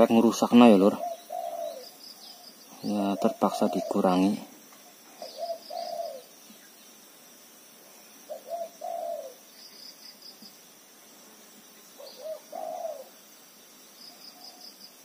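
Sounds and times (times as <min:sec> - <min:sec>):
faint high insect drone: 0:00.0 - 0:15.0
dove cooing: 0:00.5 - 0:06.4, 0:08.2 - 0:09.5, 0:11.9 - 0:13.2.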